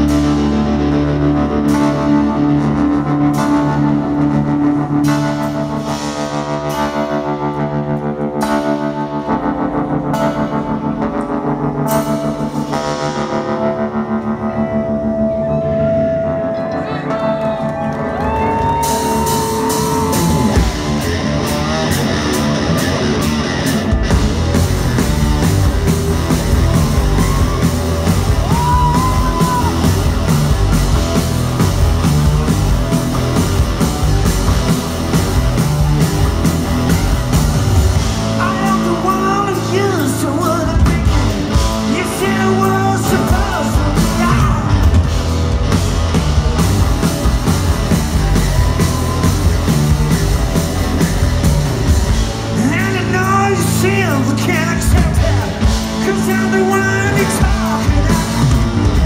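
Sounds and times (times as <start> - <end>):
live rock band playing: 0.0 - 59.0
person singing: 38.4 - 45.0, 52.6 - 59.0.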